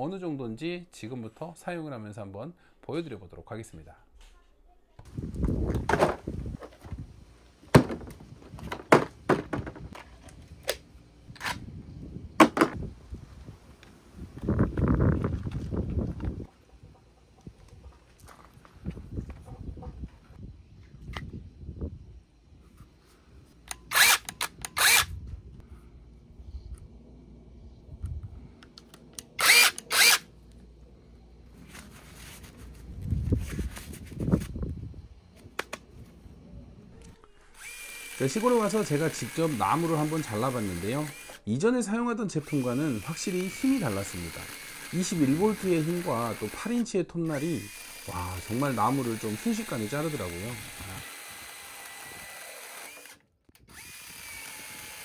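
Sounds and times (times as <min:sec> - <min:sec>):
electric chainsaw cutting wood: 0:23.7 - 0:25.1, 0:29.4 - 0:30.3, 0:37.5 - 0:41.5, 0:42.4 - 0:46.7, 0:47.3 - 0:55.0.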